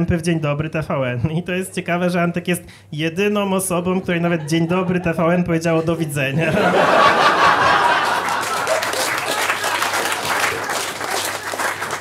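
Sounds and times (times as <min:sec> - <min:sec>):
audience laughing: 0:06.3 - 0:12.0
audience clapping: 0:07.0 - 0:12.0.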